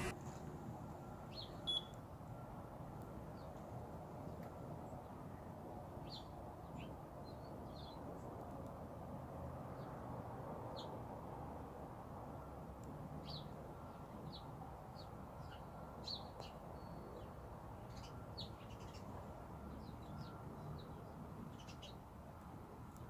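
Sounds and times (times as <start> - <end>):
small birds chirping: 15.0 - 19.2, 19.8 - 22.0.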